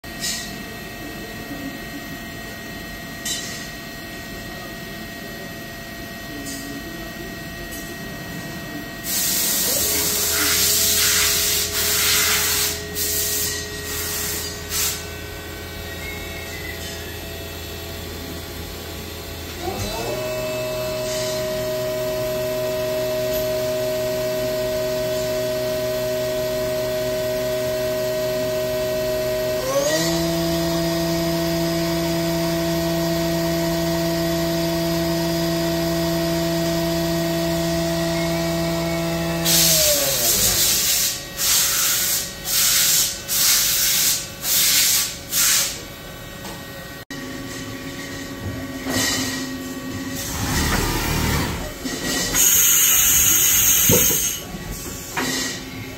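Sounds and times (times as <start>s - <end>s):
compressed air hisses: 9.1s - 15.0s
machine spindle whining: 25.1s - 42.3s, 47.8s - 55.9s.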